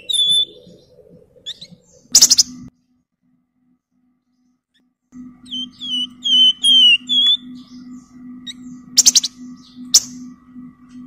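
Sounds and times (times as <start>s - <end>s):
steady low hum: 0.0s - 11.0s
songbird whistling high notes: 5.4s - 10.2s.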